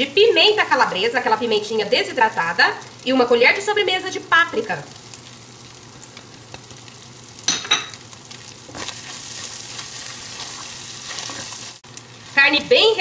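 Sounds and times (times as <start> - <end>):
meat sizzling in a pot: 0.0 - 13.0
wooden spoon stirring: 8.8 - 11.7.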